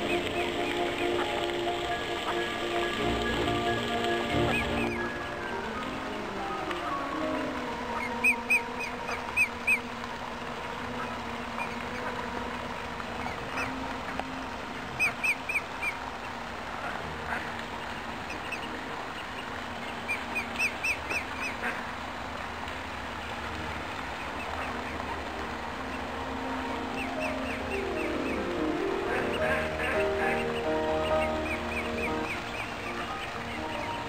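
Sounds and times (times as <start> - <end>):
duck calling: 0.0 - 9.9, 10.8 - 14.4, 15.0 - 16.0, 20.1 - 21.9, 26.9 - 34.0.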